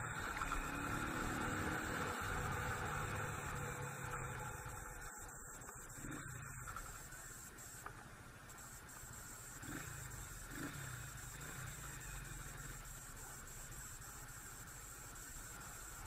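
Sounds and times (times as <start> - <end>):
electronic hiss: 0.0 - 16.0
motorcycle engine rumble: 0.0 - 16.0.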